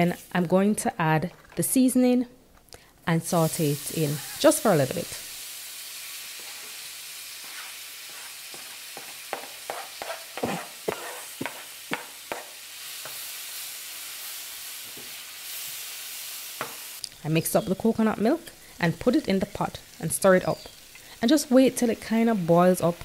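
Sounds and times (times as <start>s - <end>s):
food sizzling in a pan: 3.2s - 23.0s
spatula knocking and scraping: 7.4s - 13.2s.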